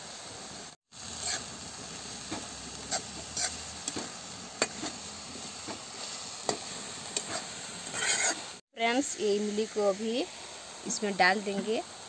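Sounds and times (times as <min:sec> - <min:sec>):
vegetables sizzling in oil: 0:00.0 - 0:12.0
spatula scraping pan: 0:01.0 - 0:08.6.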